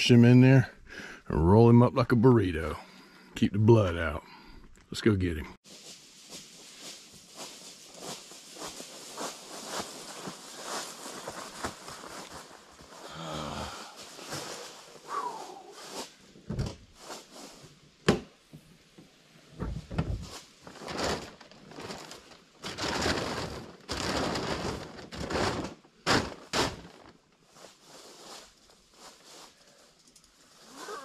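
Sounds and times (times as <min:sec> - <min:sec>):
plastic tarp rustling: 0:05.6 - 0:15.1, 0:16.8 - 0:17.6, 0:19.7 - 0:29.8, 0:30.4 - 0:31.0.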